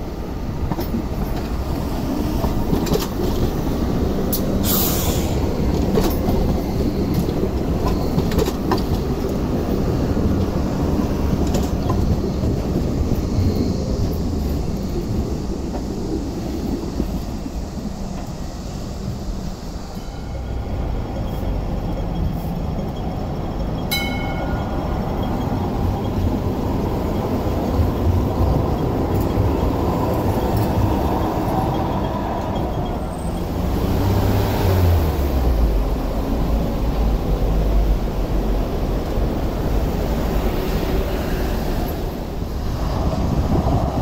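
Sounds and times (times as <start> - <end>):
light rail wheels rumbling on track: 0.0 - 44.0.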